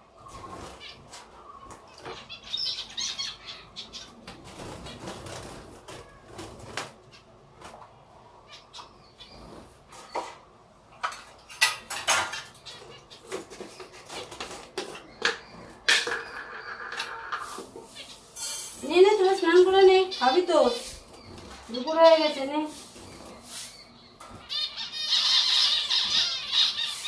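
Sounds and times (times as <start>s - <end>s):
birds fluttering in cages: 0.0s - 27.0s.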